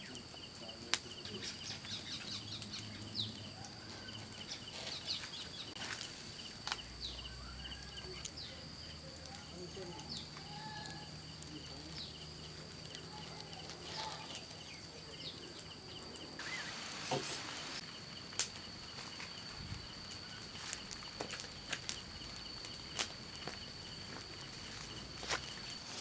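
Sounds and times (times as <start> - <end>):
insects trilling: 0.0 - 26.0
pulsing insect chirr: 0.0 - 26.0
bird chirps: 1.2 - 5.8, 6.4 - 12.5, 13.9 - 17.8.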